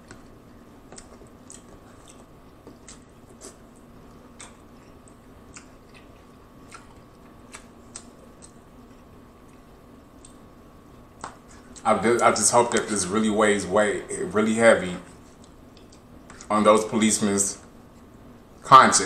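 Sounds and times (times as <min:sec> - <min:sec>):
person chewing: 0:00.0 - 0:10.5, 0:15.2 - 0:16.5
faint steady hum: 0:00.0 - 0:19.0.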